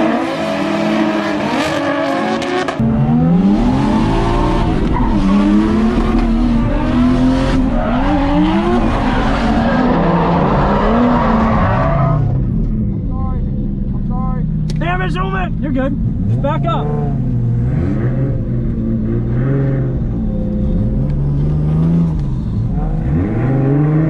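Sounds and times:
tyres skidding and squealing: 0:00.0 - 0:12.6
car engine revving: 0:00.0 - 0:24.0.

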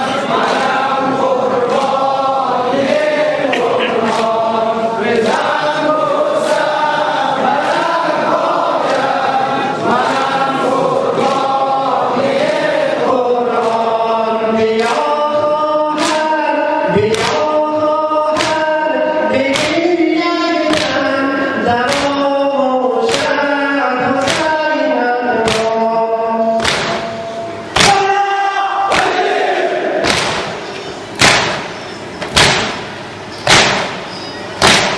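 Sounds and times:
men chanting in unison: 0:00.0 - 0:30.3
hands beating chests: 0:17.0 - 0:17.5, 0:18.3 - 0:18.7, 0:19.4 - 0:19.9, 0:20.6 - 0:21.0, 0:21.8 - 0:22.2, 0:24.2 - 0:24.6, 0:25.4 - 0:25.8, 0:26.6 - 0:28.1, 0:28.9 - 0:29.3, 0:30.0 - 0:32.9, 0:33.5 - 0:34.9.

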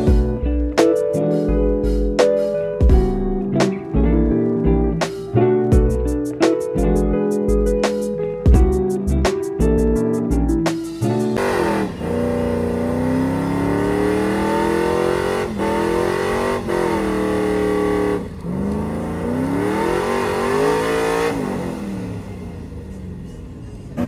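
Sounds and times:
truck engine revving hard: 0:11.4 - 0:23.3.

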